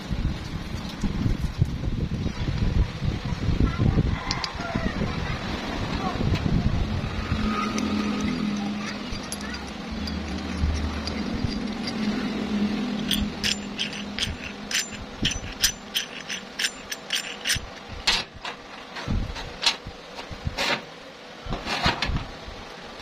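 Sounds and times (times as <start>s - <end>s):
low steady hum: 0.0s - 23.0s
steel parts clinking on steel table: 7.4s - 12.4s, 13.0s - 18.9s
light metallic clicks and rattles: 7.7s - 12.2s, 13.0s - 19.8s.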